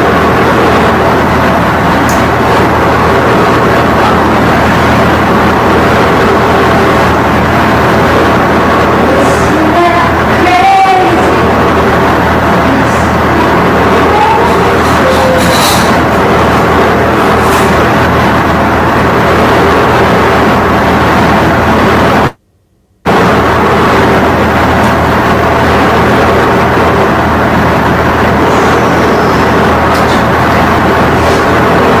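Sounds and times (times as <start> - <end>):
loud steady rushing noise: 0.0 - 22.4, 23.0 - 32.0
low hum: 0.0 - 32.0.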